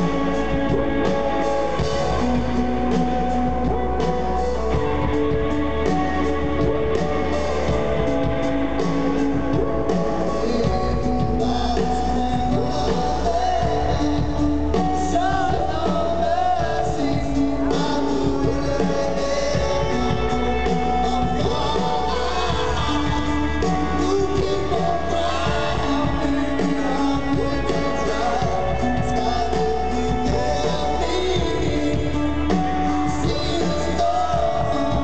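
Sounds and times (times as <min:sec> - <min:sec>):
live rock band playing: 0:00.0 - 0:35.0
person singing: 0:00.0 - 0:35.0.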